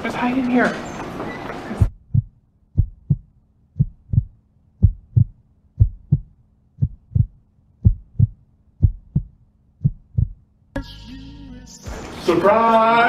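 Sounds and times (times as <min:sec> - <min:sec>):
heartbeat thumps: 0:01.8 - 0:10.5
faint steady hum: 0:01.8 - 0:13.0.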